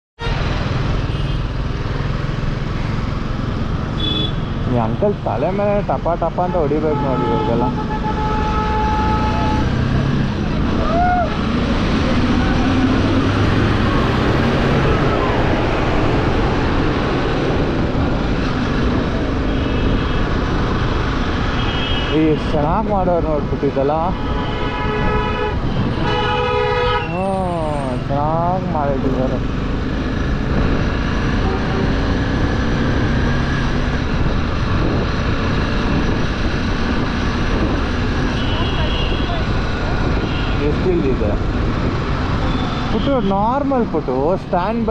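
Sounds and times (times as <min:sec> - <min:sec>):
motorcycle engine drone: 0:00.4 - 0:22.3, 0:27.2 - 0:38.6
wind noise on microphone: 0:07.8 - 0:27.5, 0:29.7 - 0:43.6.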